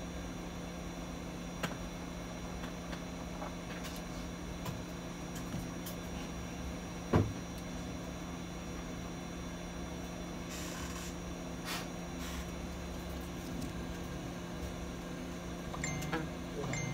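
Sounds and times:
steady low hum: 0.0s - 16.9s.

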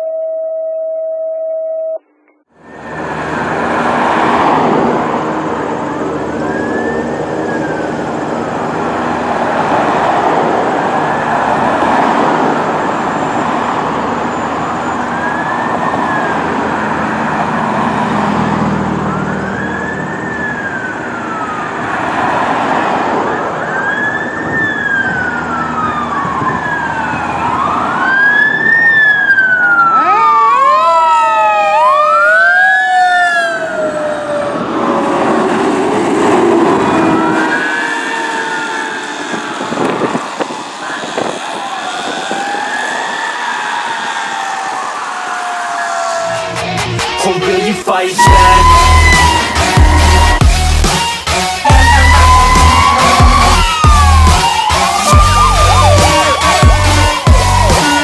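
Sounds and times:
siren yelp: 0.0s - 58.0s
fire truck siren wailing: 2.5s - 58.0s
noisy din: 35.5s - 58.0s.

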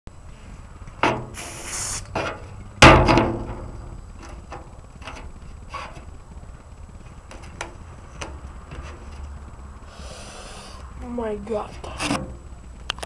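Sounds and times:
spray can hiss: 1.3s - 2.1s
loud thump: 2.8s - 3.7s.

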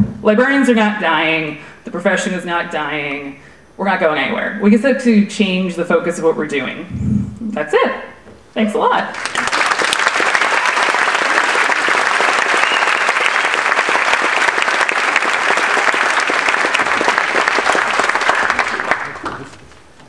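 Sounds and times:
audience applauding: 9.1s - 19.6s.

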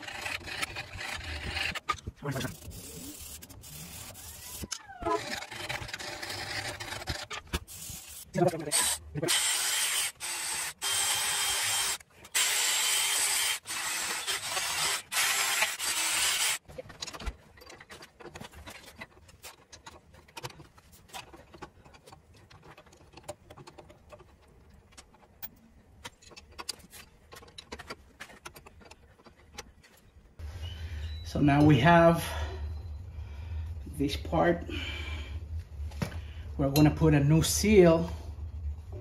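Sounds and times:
power tool scouring metal: 8.8s - 16.6s.

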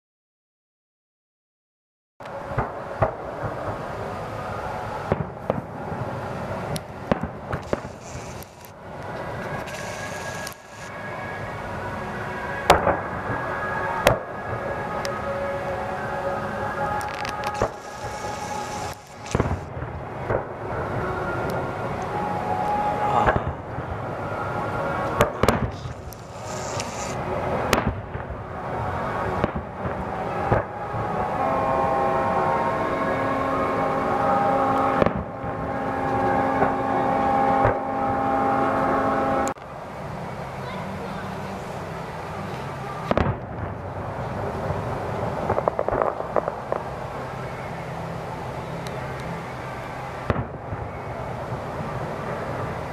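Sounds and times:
steady background noise: 2.2s - 52.9s
fireworks bangs: 2.4s - 11.1s, 12.6s - 24.0s, 25.0s - 38.6s, 42.4s - 47.9s, 50.2s - 52.9s.

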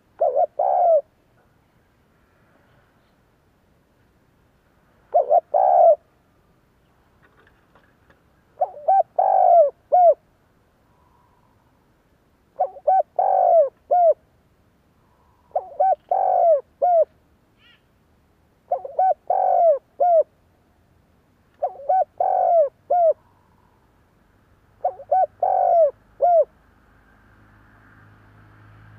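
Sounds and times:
dove cooing: 0.0s - 1.1s, 5.1s - 6.1s, 8.6s - 10.2s, 12.6s - 14.2s, 15.4s - 17.7s, 18.7s - 20.3s, 21.6s - 23.4s, 24.8s - 26.5s
faint hum: 8.5s - 22.0s.

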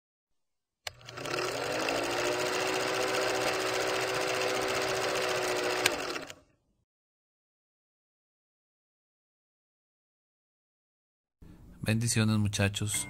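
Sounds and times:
film projector clattering: 0.9s - 6.4s
motor hum: 0.9s - 6.4s.

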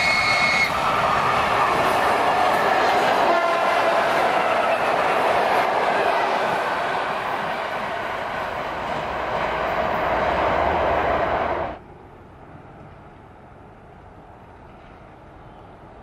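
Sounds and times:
train wheels on rail: 0.0s - 16.0s.

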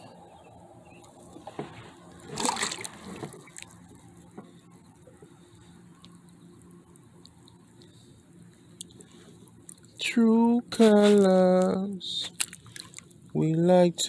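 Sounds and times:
water sloshing and trickling: 0.6s - 10.1s, 10.7s - 13.4s
fish splashing into water: 2.1s - 4.1s, 12.3s - 13.2s.

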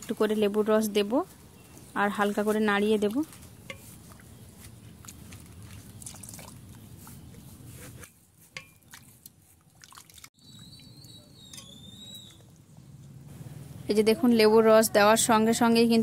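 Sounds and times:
liquid sloshing and dripping: 2.8s - 12.8s
ladle stirring milk in metal pan: 2.9s - 4.4s.

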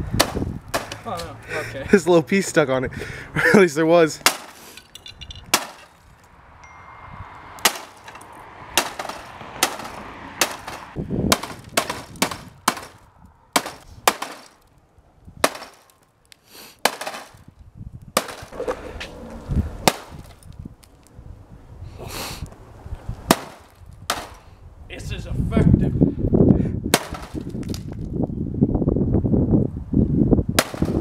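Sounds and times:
pitchfork striking broken screen: 4.2s - 6.0s, 7.6s - 13.0s, 13.6s - 14.6s, 15.4s - 16.0s, 16.8s - 17.4s.

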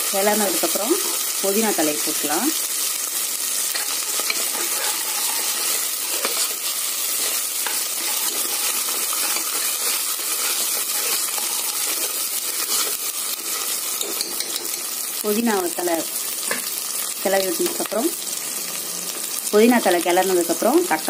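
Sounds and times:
onions sizzling in hot oil: 0.0s - 21.0s
ladle scraping and clinking pot: 3.7s - 6.5s, 7.2s - 13.0s.

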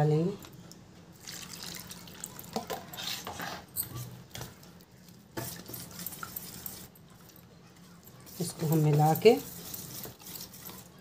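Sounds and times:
water pouring into bowl: 1.2s - 2.6s
whisk stirring thick batter: 2.5s - 11.0s.

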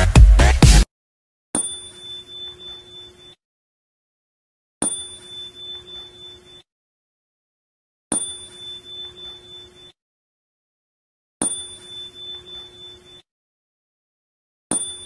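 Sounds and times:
bell-like ding: 1.6s - 3.4s, 4.8s - 6.7s, 8.1s - 10.0s, 11.4s - 13.2s, 14.7s - 15.0s.

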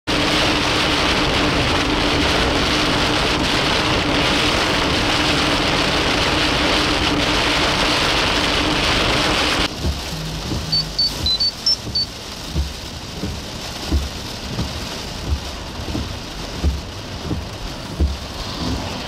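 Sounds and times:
heavy rain on a vehicle: 0.1s - 19.0s
steady low hum: 9.7s - 11.9s.

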